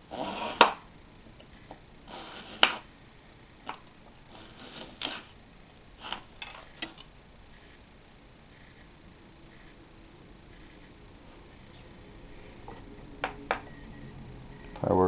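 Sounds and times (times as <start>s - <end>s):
knife scraping along ruler: 0.0s - 0.8s, 1.5s - 2.9s, 4.3s - 5.4s.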